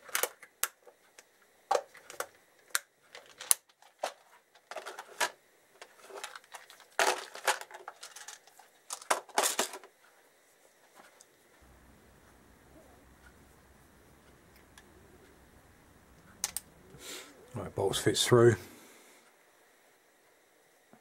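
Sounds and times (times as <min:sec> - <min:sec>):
plastic boxes clicking: 0:01.7 - 0:09.9.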